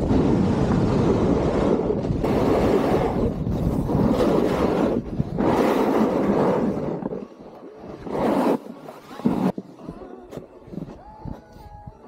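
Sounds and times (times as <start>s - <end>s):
snowboard scraping on snow: 0.0s - 9.6s
wind on microphone: 0.0s - 12.0s.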